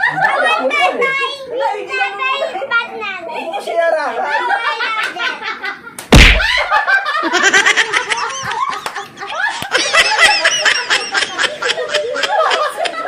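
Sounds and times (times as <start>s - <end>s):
adults laughing loudly: 0.0s - 0.9s, 4.1s - 13.0s.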